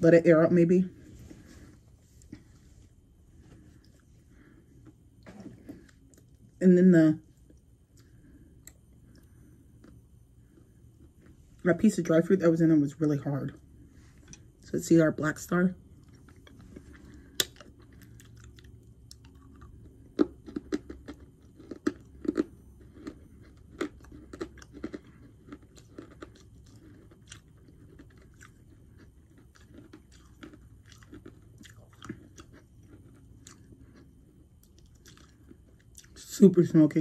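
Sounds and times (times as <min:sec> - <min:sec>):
crisp crunching and chewing: 0:15.9 - 0:36.3.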